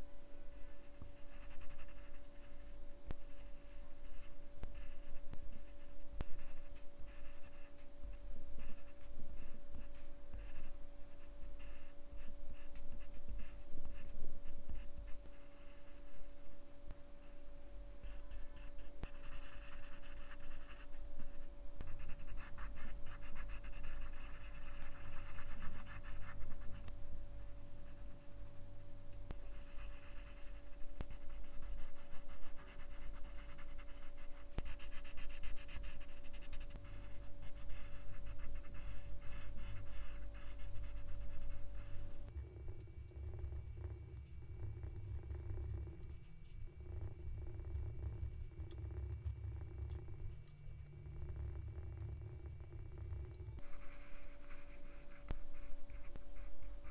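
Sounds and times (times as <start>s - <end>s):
pencils scratching on paper: 29.3s - 42.4s, 53.6s - 56.9s.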